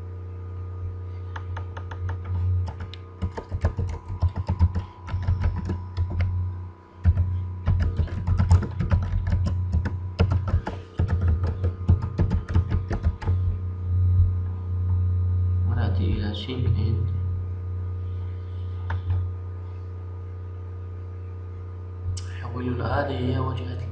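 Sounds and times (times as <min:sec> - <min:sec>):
steady low hum: 0:00.0 - 0:23.9
typing on computer keyboard: 0:01.4 - 0:06.4, 0:07.0 - 0:13.5.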